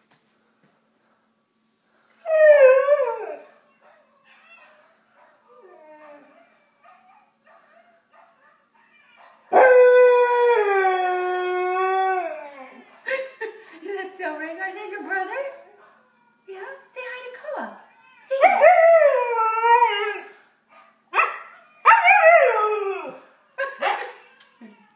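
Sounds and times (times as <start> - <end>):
husky howling: 21.2 - 23.3.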